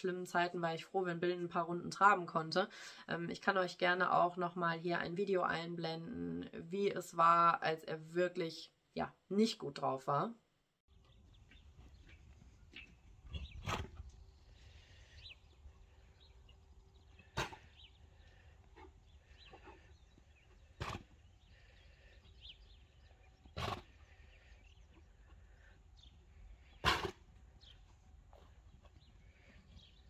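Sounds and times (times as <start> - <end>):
horse coughing: 17.2 - 19.9, 20.6 - 21.8, 23.6 - 24.2, 26.7 - 27.3.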